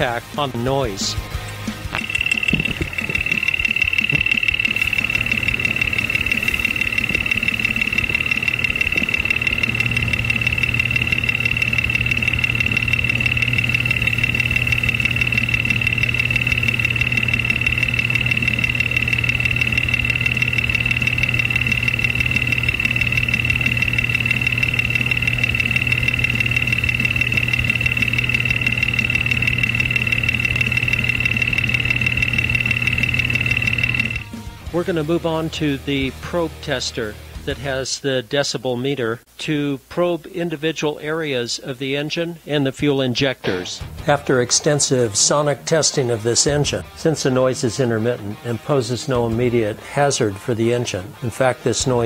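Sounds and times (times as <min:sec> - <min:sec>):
car engine idling with ticking knock: 0:01.9 - 0:34.3.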